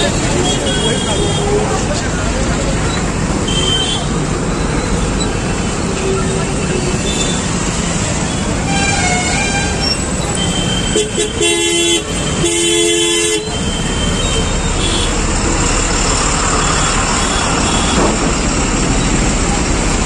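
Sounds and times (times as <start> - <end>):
vehicle horn honking: 0.0 - 1.7, 8.6 - 15.2
street traffic: 0.0 - 20.0.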